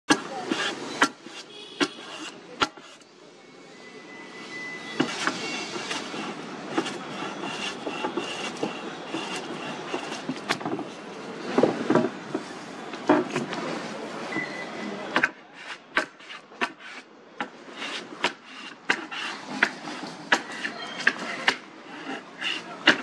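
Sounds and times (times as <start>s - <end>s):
hand plane shaving wood: 0.1s - 3.1s, 5.0s - 10.8s, 15.2s - 23.0s.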